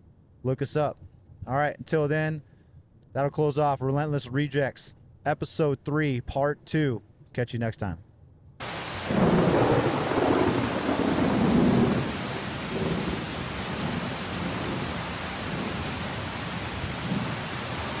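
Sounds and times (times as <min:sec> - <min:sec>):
rain falling: 0:08.6 - 0:18.0
thunder rumbling: 0:08.6 - 0:18.0.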